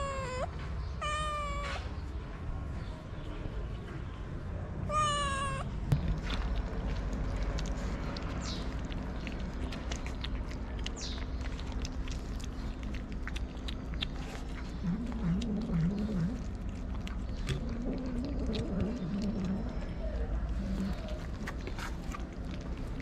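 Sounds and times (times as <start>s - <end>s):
cats chewing and licking: 4.9s - 23.0s.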